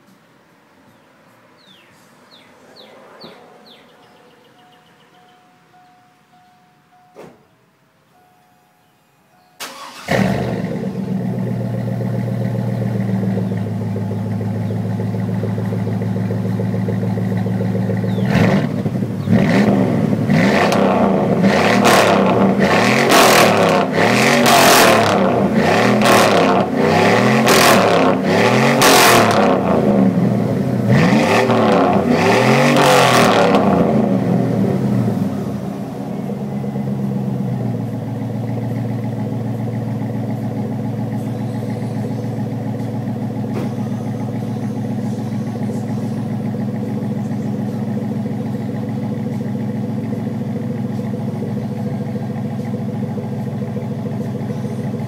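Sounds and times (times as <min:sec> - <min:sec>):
engine revving: 0:09.6 - 0:52.8
engine idling: 0:09.6 - 0:55.0.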